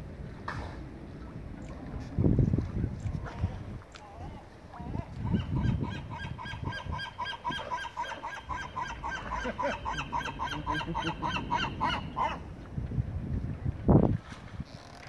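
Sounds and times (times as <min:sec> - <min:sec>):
animal calling rapidly: 0:05.3 - 0:12.4.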